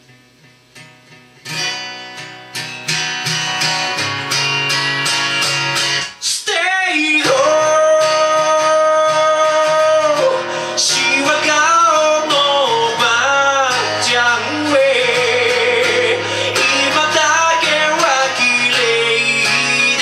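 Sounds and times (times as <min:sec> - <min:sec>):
acoustic guitar strumming: 0:00.0 - 0:20.0
man singing: 0:06.2 - 0:20.0.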